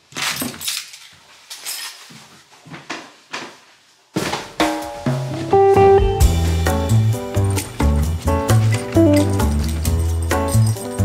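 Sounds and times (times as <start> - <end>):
music with drums and bass: 4.6 - 11.0
keys jingling: 7.3 - 11.0.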